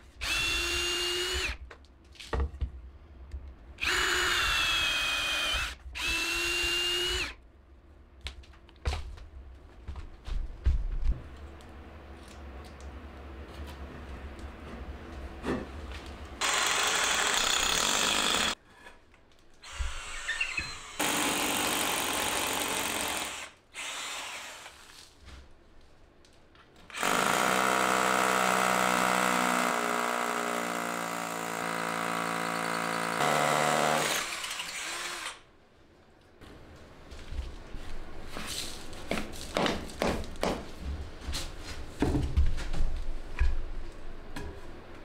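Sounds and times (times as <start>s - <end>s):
cordless drill drilling into wood: 0.2s - 1.6s, 3.8s - 7.4s, 16.4s - 18.6s, 19.6s - 24.7s, 26.9s - 35.4s.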